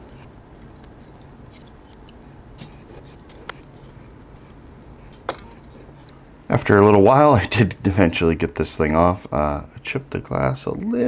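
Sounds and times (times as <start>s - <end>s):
clicks and scrapes of display: 0.0s - 6.2s
low room hum: 0.0s - 11.0s.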